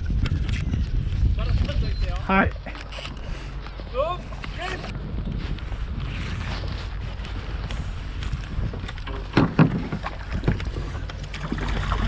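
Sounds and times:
wind rumbling on microphone: 0.0s - 12.0s
water splashing and knocking: 9.0s - 12.0s.

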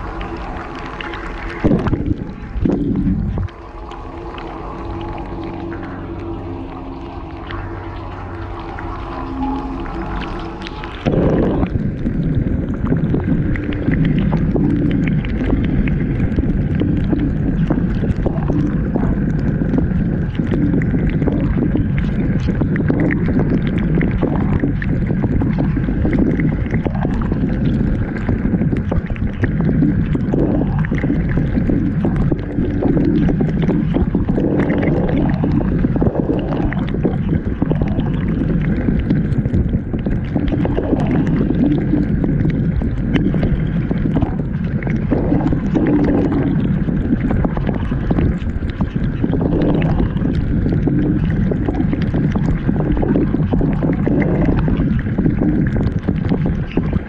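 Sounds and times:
water spraying and sloshing: 0.0s - 57.0s.

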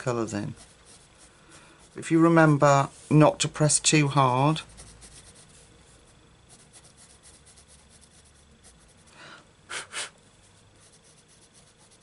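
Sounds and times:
pencil scratching on paper: 0.4s - 2.5s, 4.5s - 9.1s, 10.4s - 12.0s
person breathing: 1.2s - 2.0s, 9.1s - 10.2s
puffs of breath: 9.1s - 10.2s.

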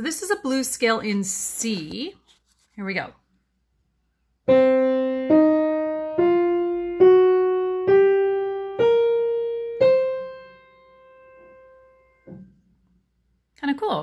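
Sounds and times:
piano playing ascending scale: 4.5s - 12.4s.

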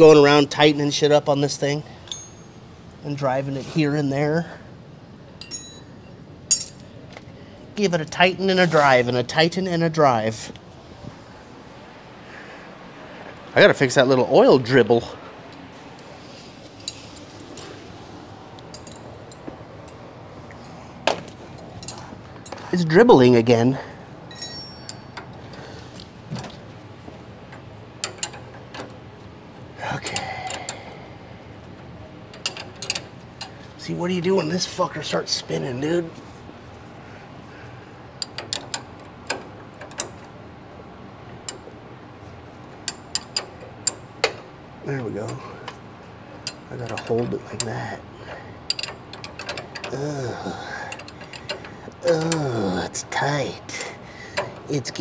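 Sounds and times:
metallic clink of hand tools: 24.3s - 25.3s
wrench clicking on a nut: 50.9s - 52.4s.

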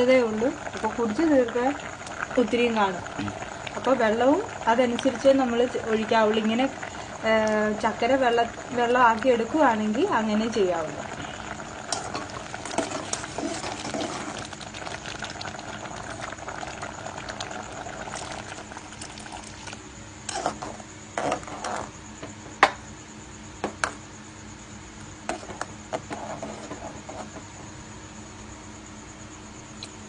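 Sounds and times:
porridge bubbling in a pot: 0.0s - 30.0s.

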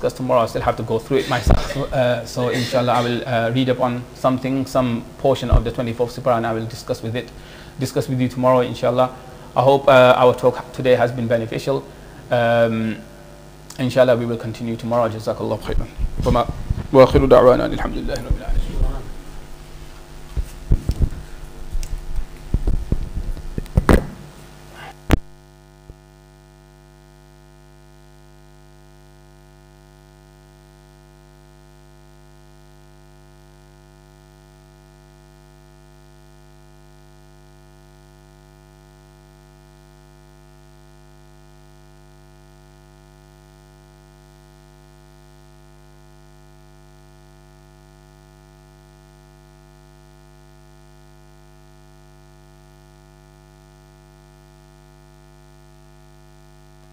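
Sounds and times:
electrical mains hum: 0.0s - 56.9s
cables and microphone handled: 19.9s - 24.3s.

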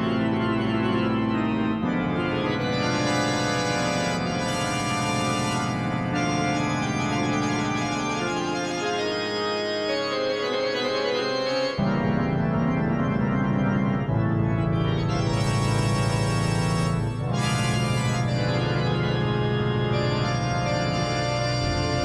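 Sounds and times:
slow held music chords: 3.0s - 7.4s, 15.1s - 18.7s.

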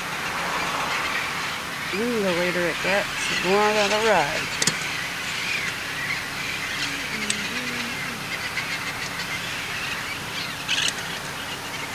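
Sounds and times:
parrots squawking: 0.6s - 11.9s
parrots chattering: 1.0s - 11.9s.

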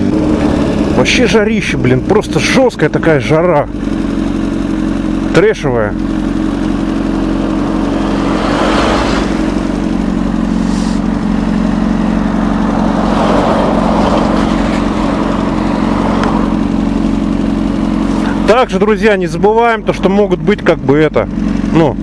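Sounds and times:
motorcycle engine idling: 0.0s - 8.4s, 9.5s - 13.1s, 13.7s - 22.0s
rushing noise: 7.3s - 17.0s.

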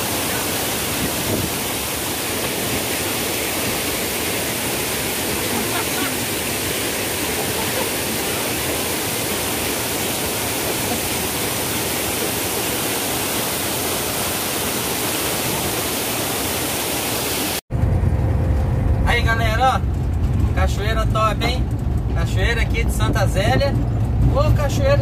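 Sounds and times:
waterfall rushing: 0.0s - 17.6s
vehicle engine and road rumble: 17.7s - 25.0s.

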